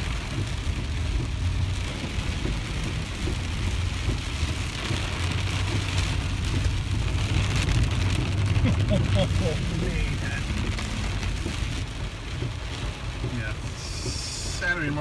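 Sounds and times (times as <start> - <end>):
car and tyres rumbling: 0.0 - 15.0
heavy rain on car: 0.0 - 15.0.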